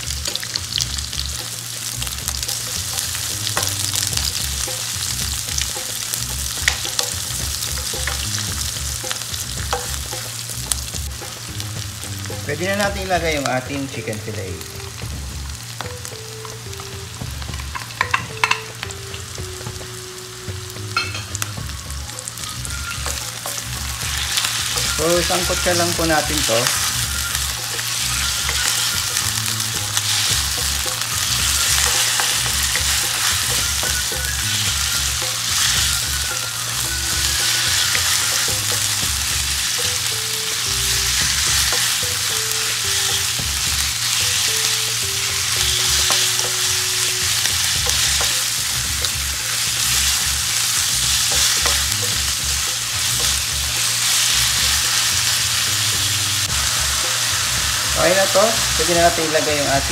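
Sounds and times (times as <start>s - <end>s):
food sizzling in hot oil: 0.0s - 59.9s
spatula stirring in pan: 26.5s - 36.0s.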